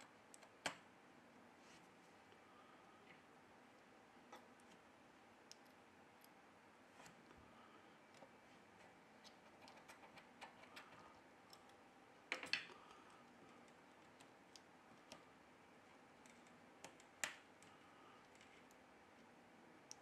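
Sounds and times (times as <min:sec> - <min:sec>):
light clicks of small parts: 0:05.4 - 0:06.4, 0:08.1 - 0:15.3, 0:16.2 - 0:20.0.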